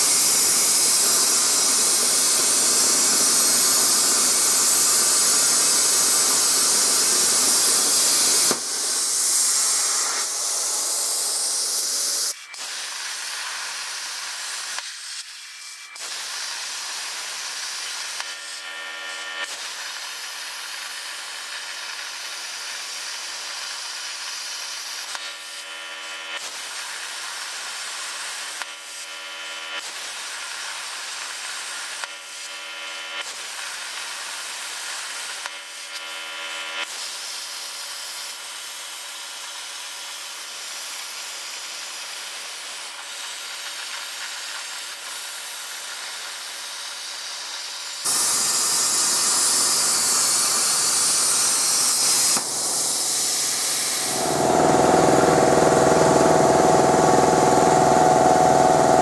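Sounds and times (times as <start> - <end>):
plasma torch hissing: 0.0 - 25.7, 26.3 - 29.2, 29.8 - 32.6, 33.2 - 36.0, 36.8 - 59.0
low machine hum: 52.4 - 59.0
steady electronic tones: 52.4 - 59.0.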